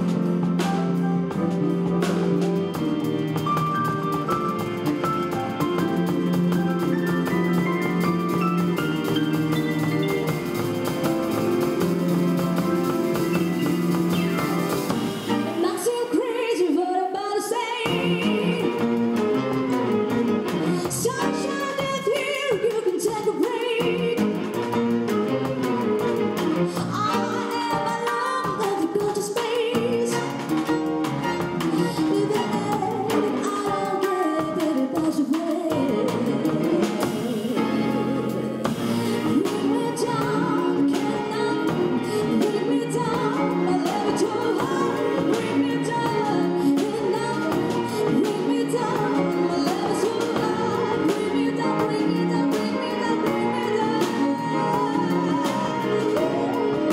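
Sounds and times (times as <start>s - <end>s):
ticking percussion rhythm: 0.0s - 15.7s
string ensemble playing chords: 0.0s - 15.9s
string ensemble: 0.0s - 28.9s, 35.3s - 56.9s
drums: 0.0s - 56.9s
woman singing: 15.0s - 56.9s.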